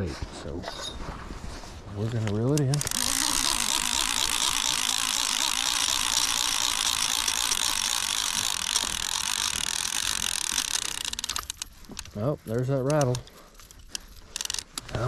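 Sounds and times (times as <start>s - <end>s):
fishing reel clicking whir: 2.5s - 12.2s, 12.9s - 15.0s.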